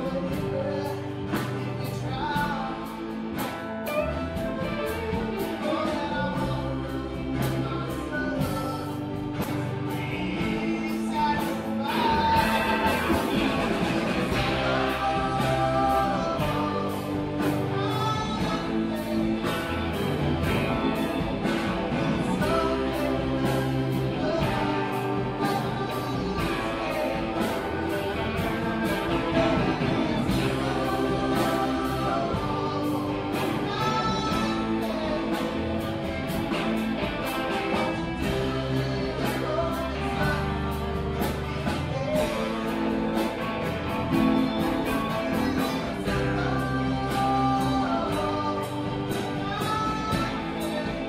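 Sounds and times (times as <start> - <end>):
live rock song on guitar: 0.0 - 51.0
man singing: 0.0 - 51.0.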